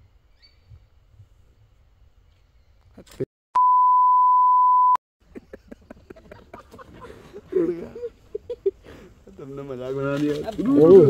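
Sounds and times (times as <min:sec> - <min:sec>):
censor bleep: 0:03.6 - 0:05.0.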